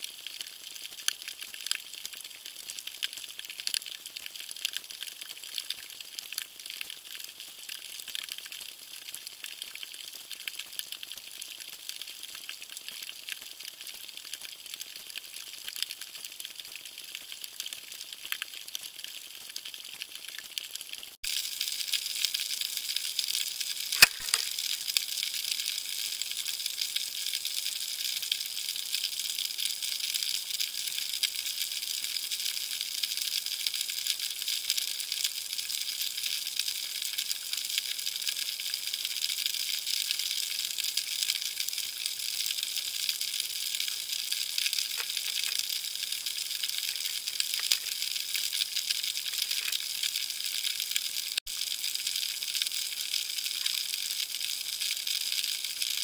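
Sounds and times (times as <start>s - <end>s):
snapping shrimp crackling underwater: 22.2s - 27.5s, 42.5s - 52.5s, 53.4s - 54.0s.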